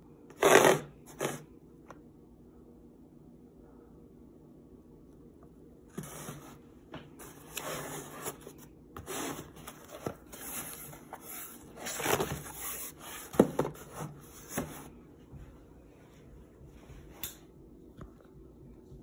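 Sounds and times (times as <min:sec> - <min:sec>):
cardboard box scraping on table: 0:00.3 - 0:01.4, 0:07.2 - 0:14.9.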